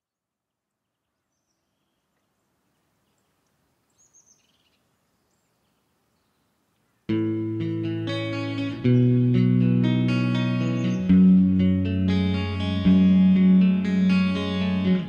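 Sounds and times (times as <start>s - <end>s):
loud electric guitar music: 7.1s - 15.0s
high bird chirps: 10.4s - 11.4s.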